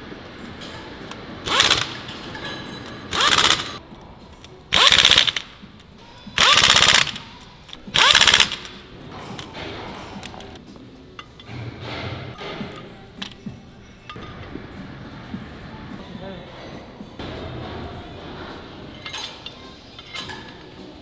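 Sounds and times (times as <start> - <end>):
pneumatic impact wrench hammering: 1.4 - 2.1, 3.1 - 3.8, 4.7 - 5.5, 6.4 - 7.2, 7.9 - 8.8.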